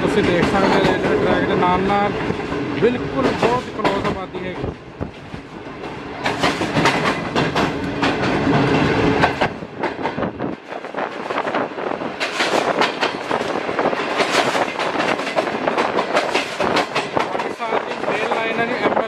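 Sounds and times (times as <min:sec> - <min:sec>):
train rumble: 0:00.0 - 0:19.0
train wheels clicking over joints: 0:00.0 - 0:19.0.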